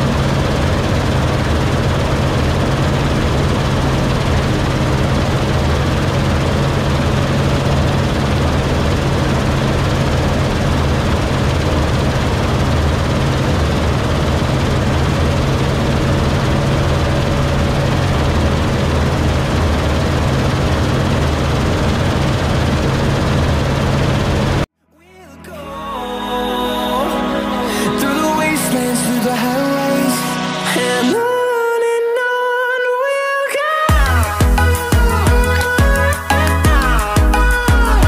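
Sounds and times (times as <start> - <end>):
combine harvester running: 0.0 - 24.7.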